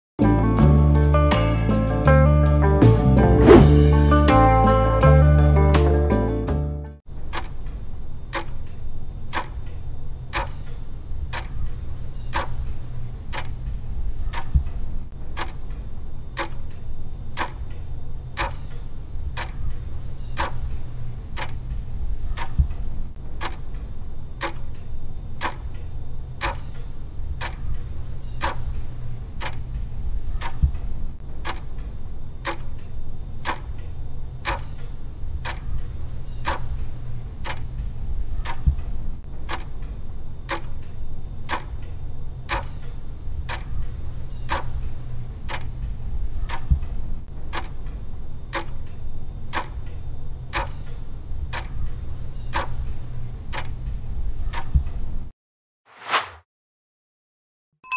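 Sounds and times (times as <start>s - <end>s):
steady low hum: 7.1s - 55.3s
clock ticking: 7.2s - 55.1s.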